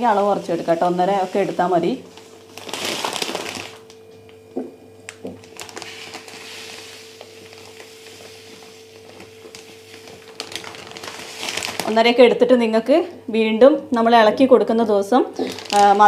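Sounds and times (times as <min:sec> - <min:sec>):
plastic bag crinkling: 0:00.0 - 0:04.0, 0:05.1 - 0:12.5, 0:15.4 - 0:16.0
faint steady hum: 0:00.0 - 0:16.0.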